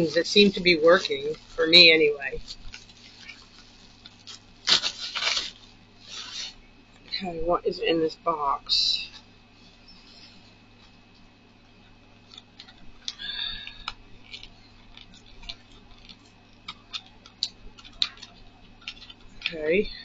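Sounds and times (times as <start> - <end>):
packaging being opened: 2.4 - 6.6, 12.2 - 19.5.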